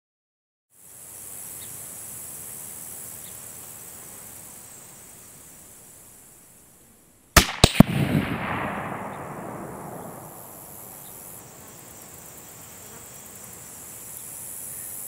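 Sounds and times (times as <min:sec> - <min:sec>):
rifle shots: 0:07.4 - 0:11.4
rolling echo: 0:07.4 - 0:11.5.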